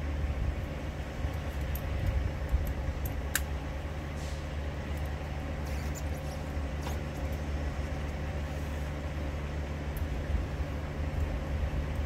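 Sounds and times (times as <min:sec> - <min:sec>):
truck engine idling: 0:00.0 - 0:12.0
pliers clicking on metal fittings: 0:01.6 - 0:03.5.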